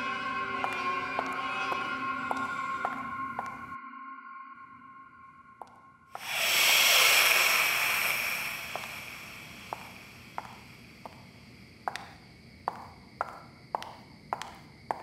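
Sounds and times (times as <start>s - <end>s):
high heels on tiled floor: 0.0s - 3.8s, 5.6s - 15.0s
loud rushing whoosh: 6.2s - 10.2s.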